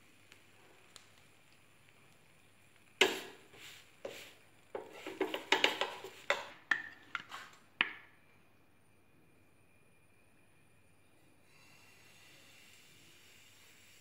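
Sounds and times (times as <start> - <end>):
spatula scraping a pan: 3.0 - 7.6.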